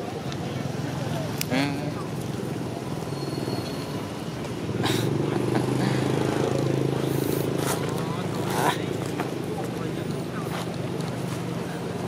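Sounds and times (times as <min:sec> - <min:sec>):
vehicle engine running: 0:04.2 - 0:12.0.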